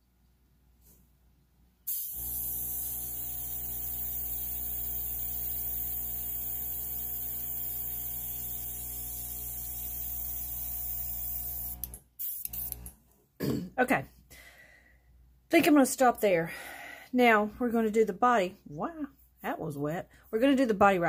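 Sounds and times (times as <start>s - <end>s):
airbrush air hiss: 1.9s - 12.8s
air compressor motor hum: 1.9s - 12.9s.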